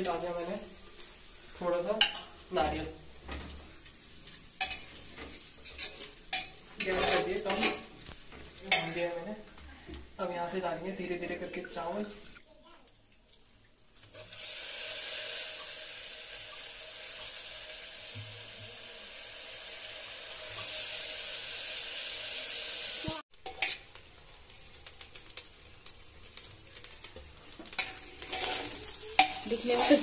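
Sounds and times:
oil and rice sizzling: 0:00.0 - 0:30.0
metal spatula scraping pot: 0:04.6 - 0:09.1, 0:23.4 - 0:23.8, 0:27.6 - 0:30.0.

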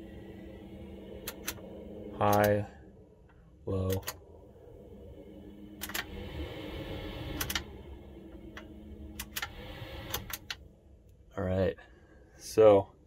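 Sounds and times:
range hood fan whooshing: 0:00.0 - 0:11.1
push buttons clicking: 0:01.2 - 0:01.6, 0:02.2 - 0:02.6, 0:05.8 - 0:06.1, 0:07.3 - 0:07.7, 0:08.6 - 0:10.6.

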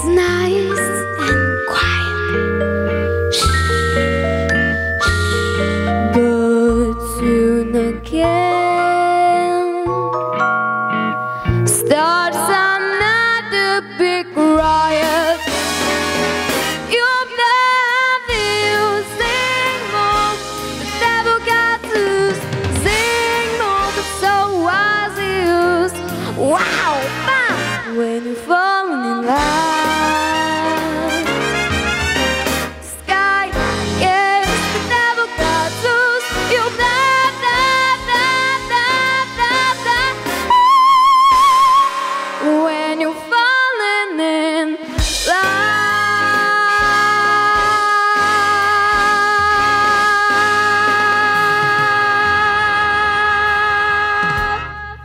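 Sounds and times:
girl singing pop song: 0:00.0 - 0:02.5, 0:05.0 - 0:10.1, 0:11.4 - 0:15.4, 0:16.8 - 0:31.3, 0:32.8 - 0:55.0
backing track with drums and bass: 0:18.2 - 0:27.9, 0:29.3 - 0:41.9, 0:45.0 - 0:55.0.

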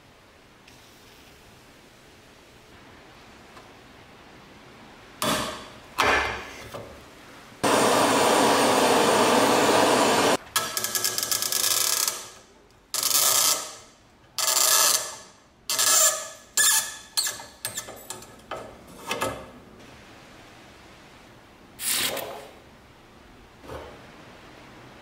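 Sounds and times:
rusted bolt squeaking: 0:14.4 - 0:18.2.

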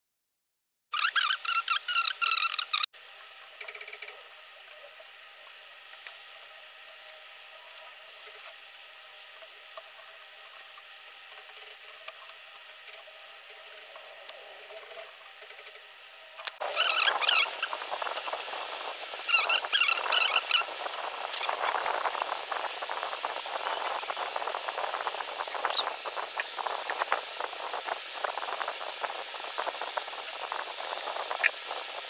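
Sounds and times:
short high squeaks: 0:01.0 - 0:02.9, 0:16.6 - 0:17.8, 0:19.3 - 0:22.2, 0:25.5 - 0:27.0.

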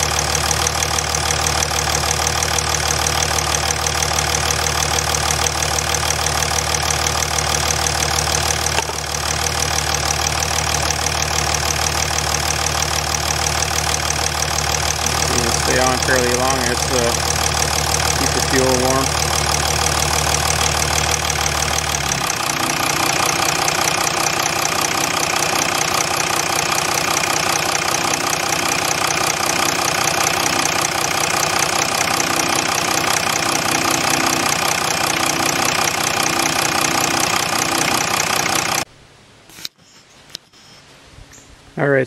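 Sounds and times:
diesel engine idling: 0:00.0 - 0:38.9.

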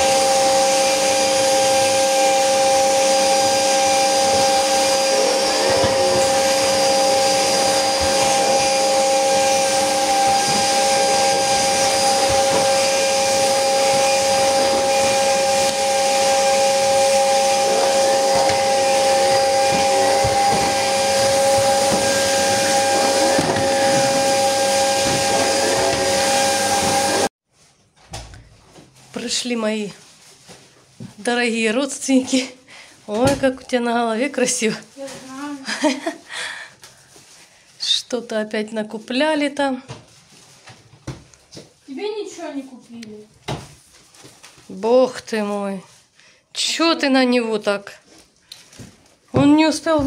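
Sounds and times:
vacuum cleaner running: 0:00.0 - 0:27.3
vacuum nozzle on hard floor: 0:00.0 - 0:27.3, 0:48.2 - 0:50.0.

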